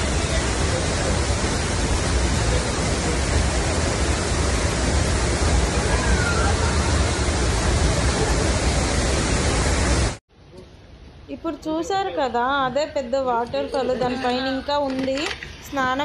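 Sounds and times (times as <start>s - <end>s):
loud rush of falling water: 0.0s - 10.2s.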